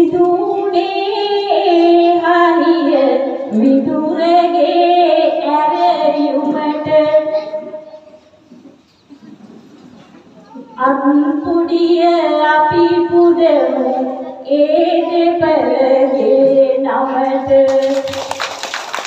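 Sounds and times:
woman singing into a microphone: 0.0 - 7.6, 10.8 - 18.1.

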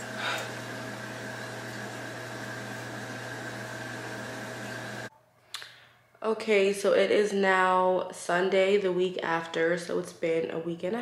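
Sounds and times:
background hum and hiss: 0.0 - 6.4.

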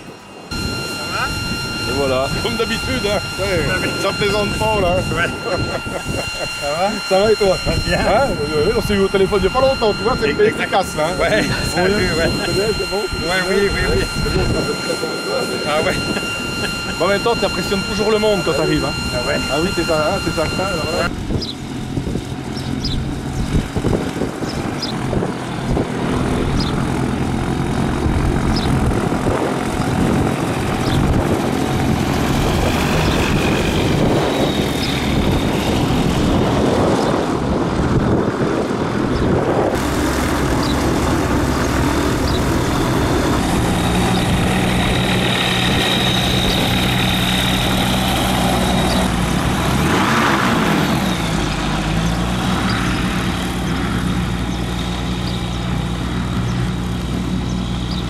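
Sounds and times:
low steady tone: 0.0 - 21.2
short high chirps: 0.0 - 21.5
engine running steadily: 0.0 - 58.0.

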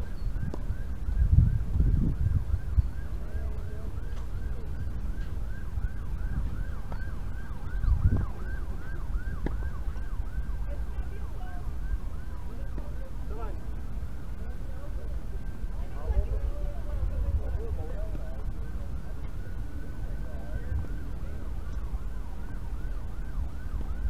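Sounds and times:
warbling siren tone: 0.0 - 24.0
wind rumble on microphone: 0.0 - 24.0.

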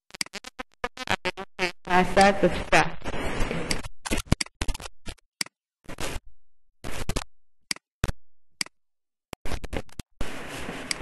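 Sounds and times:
short scratchy noises: 0.0 - 4.9, 5.8 - 6.2.

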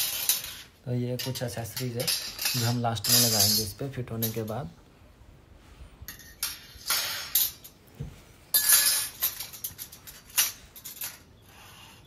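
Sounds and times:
metal parts clinking and scraping: 0.0 - 4.6, 6.1 - 7.8, 8.5 - 11.4.

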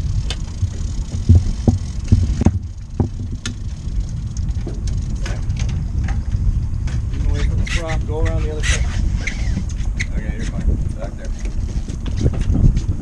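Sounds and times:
gear knocking: 0.0 - 6.2
wind buffeting microphone: 0.0 - 13.0.

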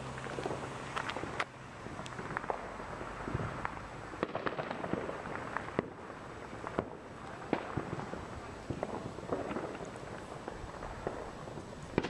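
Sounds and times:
fireworks popping and banging: 0.0 - 12.0
sharp firecracker bangs: 2.2 - 12.0.

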